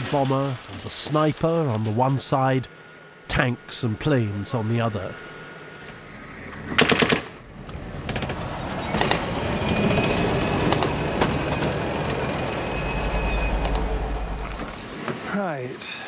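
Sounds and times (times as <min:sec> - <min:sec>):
heavy vehicle rumble: 0:07.4 - 0:15.0.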